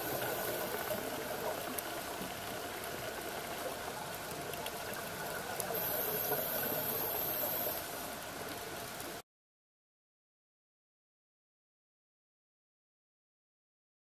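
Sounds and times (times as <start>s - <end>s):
thin high whine: 0.0s - 1.4s, 5.7s - 8.5s
faint ticks: 0.0s - 9.2s.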